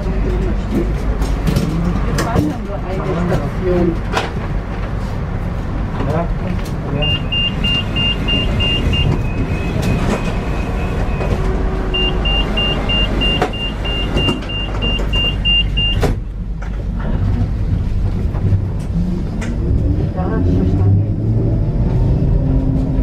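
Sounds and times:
low rumble of tram: 0:00.0 - 0:23.0
door warning beeps: 0:07.0 - 0:16.2.

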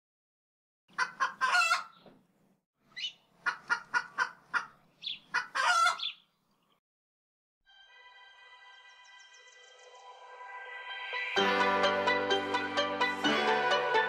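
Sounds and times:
chicken clucking and squawking: 0:00.9 - 0:02.0, 0:03.0 - 0:06.2.

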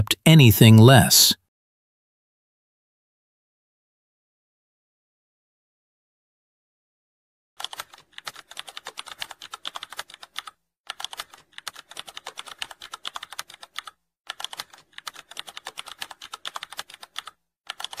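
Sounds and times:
rapid keyboard typing: 0:07.6 - 0:18.0.

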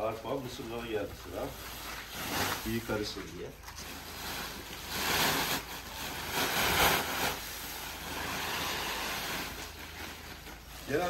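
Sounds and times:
grain pouring hiss: 0:04.0 - 0:11.0.

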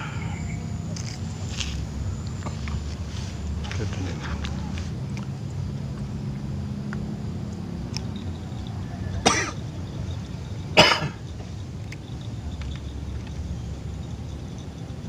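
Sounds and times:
person coughing: 0:09.2 - 0:09.6, 0:10.8 - 0:11.2.

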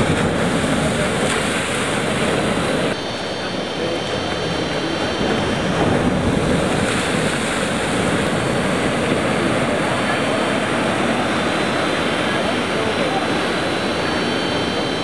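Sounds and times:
ocean surf rushing: 0:00.0 - 0:15.0
wind on microphone: 0:00.0 - 0:15.0.

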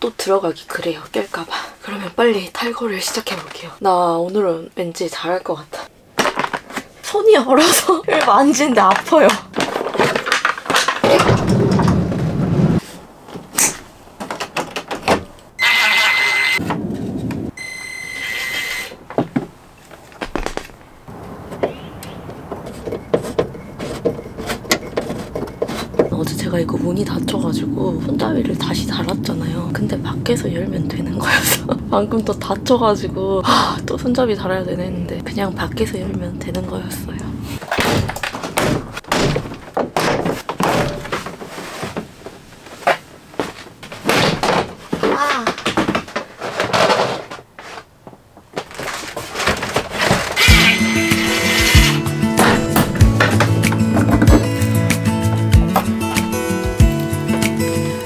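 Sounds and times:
cordless drill whining: 0:15.6 - 0:16.6, 0:17.6 - 0:19.0, 0:50.4 - 0:52.1
plastic trim panel knocking and scraping: 0:22.4 - 0:26.1.

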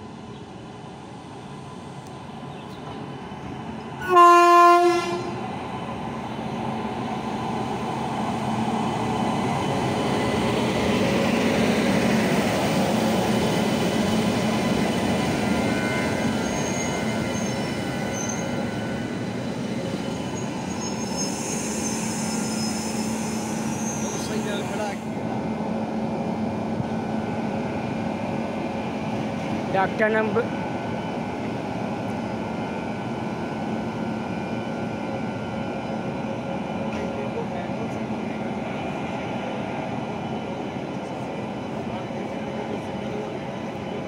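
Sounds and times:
train wheels rumbling on rail: 0:00.2 - 0:44.0
locomotive horn blast: 0:04.0 - 0:05.4
high-pitched wheel squeals: 0:16.3 - 0:18.6, 0:20.0 - 0:24.6.

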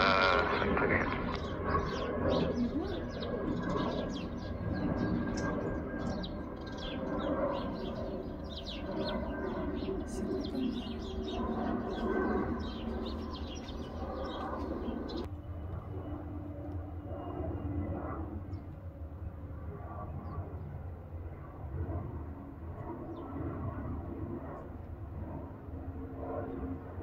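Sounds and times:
small birds chirping: 0:00.0 - 0:15.3
low rumble of aircraft engines: 0:00.0 - 0:27.0.

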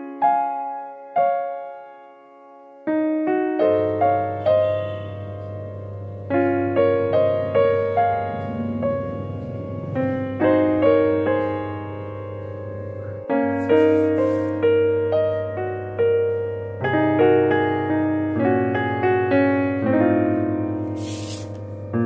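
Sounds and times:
keyboard playing gentle notes: 0:00.0 - 0:22.0
steady low bass note: 0:06.5 - 0:12.6.

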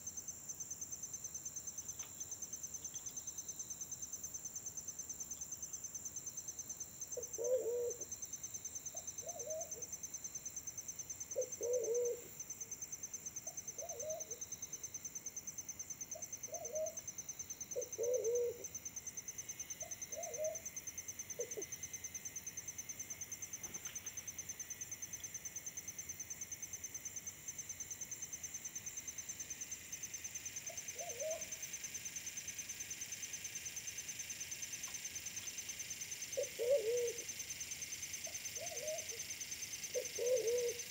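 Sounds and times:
high pulsing insect trill: 0:00.0 - 0:40.9
pigeons cooing: 0:11.6 - 0:12.2, 0:17.9 - 0:18.6, 0:36.4 - 0:37.2, 0:40.0 - 0:40.8.

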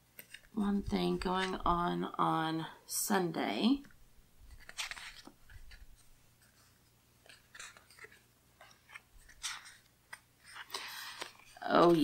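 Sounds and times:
paper rustling and crinkling: 0:04.4 - 0:12.0.

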